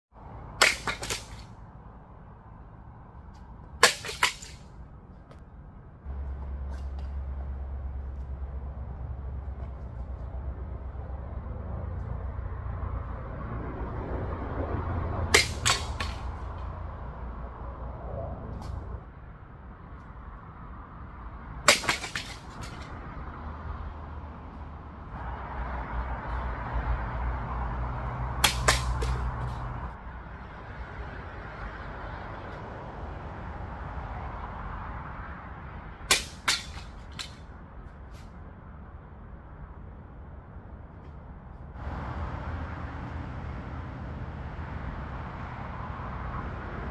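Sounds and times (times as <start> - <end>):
sword cutting target crack: 0.6 - 1.5, 3.8 - 4.7, 15.3 - 16.5, 21.7 - 22.9, 28.4 - 29.6, 36.1 - 37.4
steady low rumble: 4.6 - 21.7
sword swishing and cutting: 15.3 - 16.4
small hits: 21.7 - 22.9.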